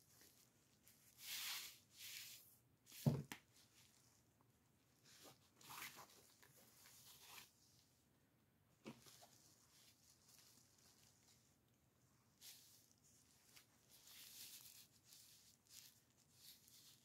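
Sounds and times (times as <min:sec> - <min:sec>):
fabric rustling: 0:00.0 - 0:08.0, 0:08.8 - 0:17.0.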